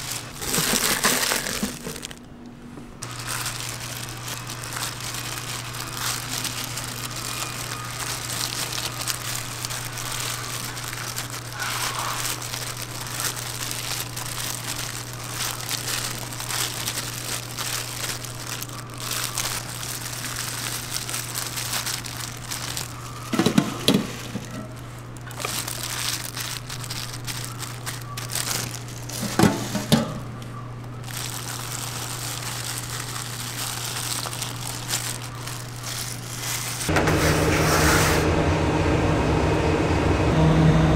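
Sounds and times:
plastic gloves rustling: 0.0s - 37.4s
low hum: 29.8s - 40.9s.

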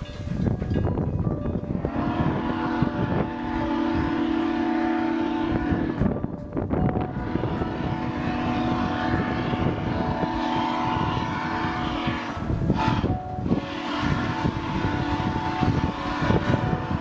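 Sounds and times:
rough wind-like noise: 0.0s - 17.0s
drone propellers whining: 1.6s - 17.0s.

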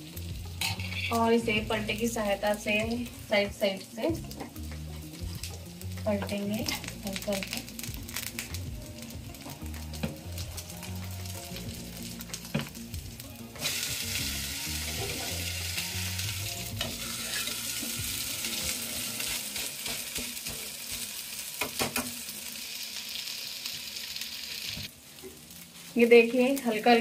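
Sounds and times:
pancake sizzling in a pan: 0.0s - 27.0s
metal spatula tapping and scraping: 19.8s - 22.1s.

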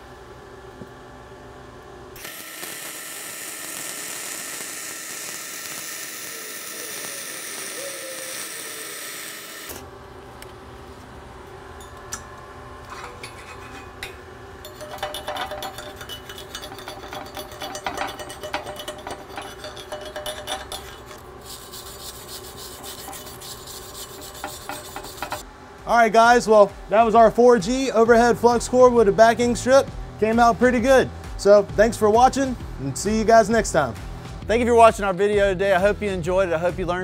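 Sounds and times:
welding arc crackling and hissing: 2.2s - 9.8s, 14.8s - 37.0s.

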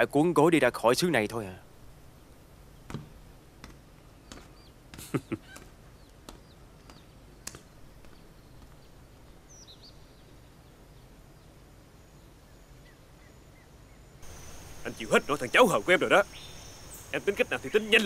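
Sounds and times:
faint steady background: 0.0s - 18.0s
falling bird chirps: 12.9s - 18.0s.

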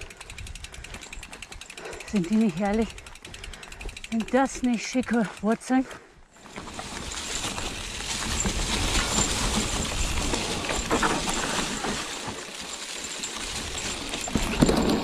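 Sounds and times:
tyre and wind noise: 0.0s - 1.7s, 6.4s - 15.0s
bike knocks and rattles: 6.4s - 15.0s.

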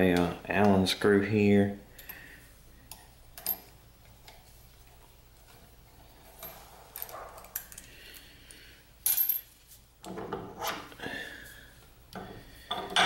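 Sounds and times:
metal tools rubbing and rattling: 3.4s - 8.0s.

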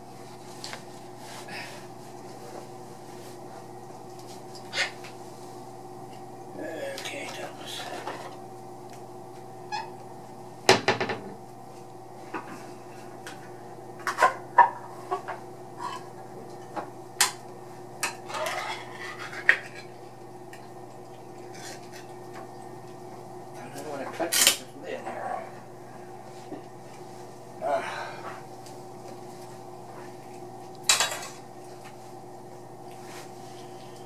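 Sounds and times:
steady low hum: 0.0s - 34.0s
dishes clattering: 30.9s - 31.4s.

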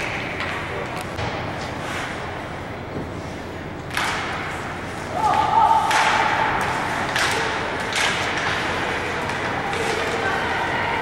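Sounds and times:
crowd noise: 5.1s - 11.0s.

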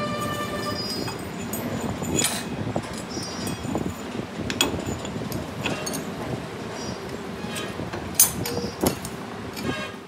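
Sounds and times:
steel tools clinking: 0.2s - 6.2s, 7.5s - 9.7s
metal scrape: 7.4s - 8.7s, 9.6s - 10.0s.

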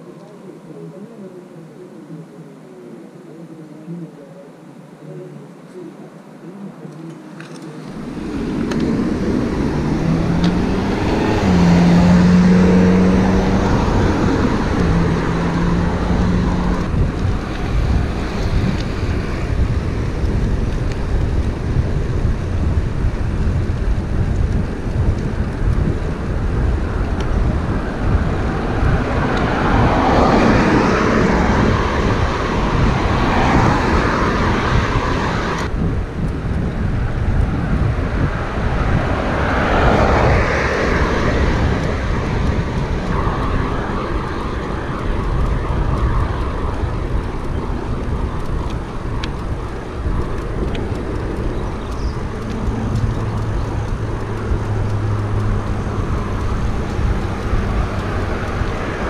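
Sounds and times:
wind rushing over microphone: 0.0s - 59.0s
vehicle engine hum: 5.3s - 59.0s
tyre noise from passing cars: 6.2s - 59.0s.

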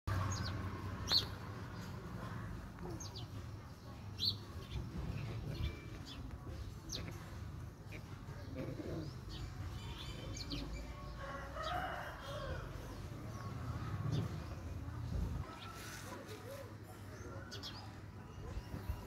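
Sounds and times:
birds chirping: 0.1s - 19.0s.

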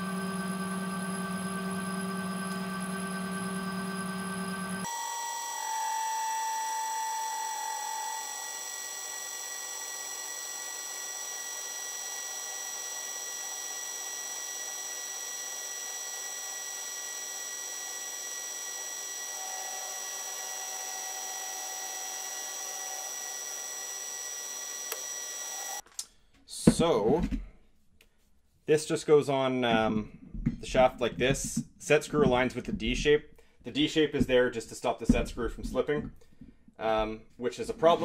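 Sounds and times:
lathe whine: 0.0s - 25.8s.

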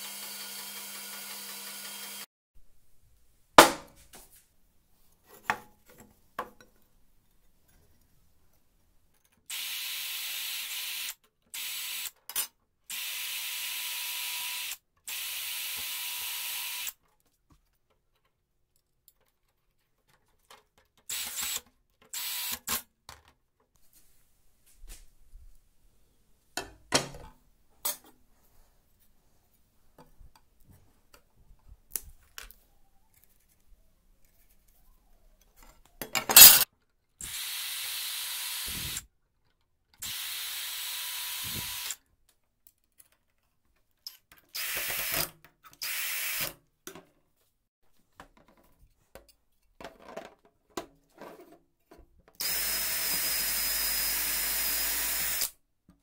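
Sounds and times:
cordless drill running: 0.0s - 2.3s, 9.5s - 12.1s, 12.9s - 16.9s, 37.2s - 39.0s, 40.0s - 42.0s, 44.6s - 45.2s, 45.8s - 46.5s, 52.4s - 55.5s.

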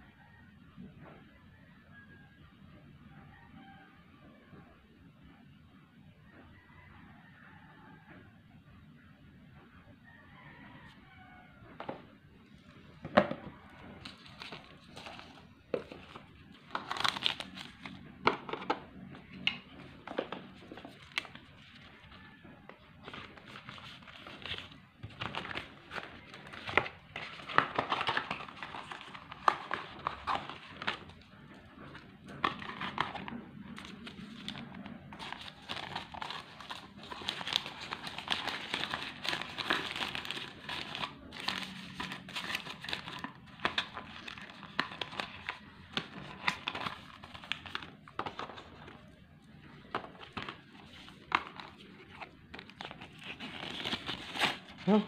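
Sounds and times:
plastic crinkling and rustling: 13.4s - 55.0s.

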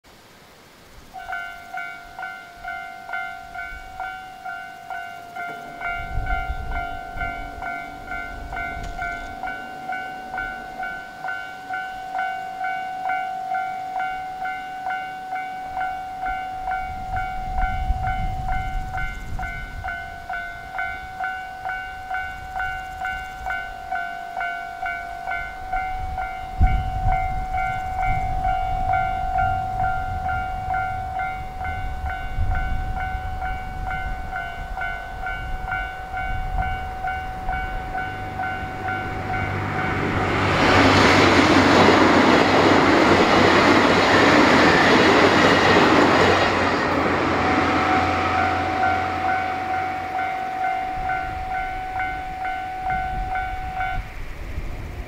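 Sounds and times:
approaching train: 0.1s - 55.0s
electronic crossing bell dinging: 1.2s - 44.1s, 44.7s - 54.2s
low rumble: 35.2s - 55.0s.

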